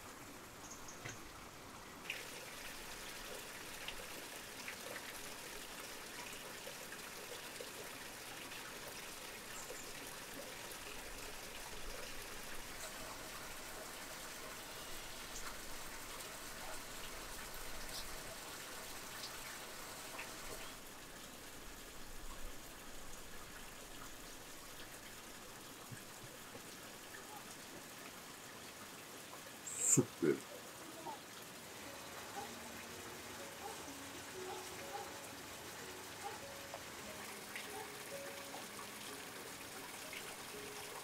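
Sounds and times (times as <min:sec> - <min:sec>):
faint water noise: 0:00.0 - 0:41.0.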